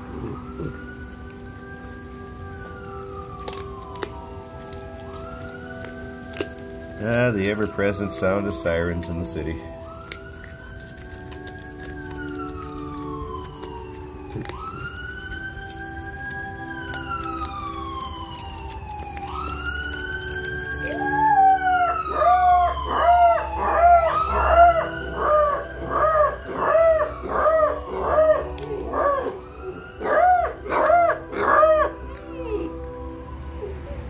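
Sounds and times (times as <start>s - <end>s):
puppy howling: 0.0s - 1.5s, 8.3s - 34.0s
police sirens wailing: 0.0s - 34.0s.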